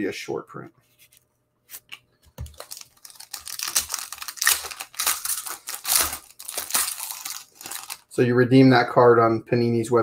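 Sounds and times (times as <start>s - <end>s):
foil pack tearing and crinkling: 2.4s - 8.1s.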